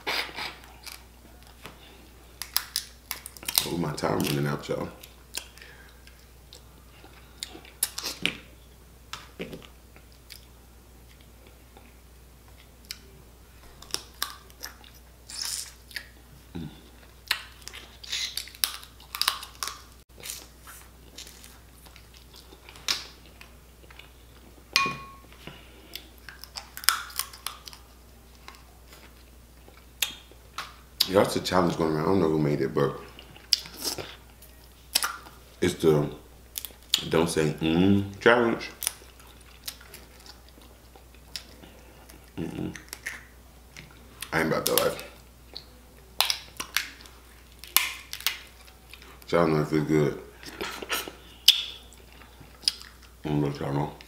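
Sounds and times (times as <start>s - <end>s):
chewing and biting: 16.9s - 24.2s, 25.4s - 31.1s, 38.8s - 49.3s, 50.4s - 53.2s.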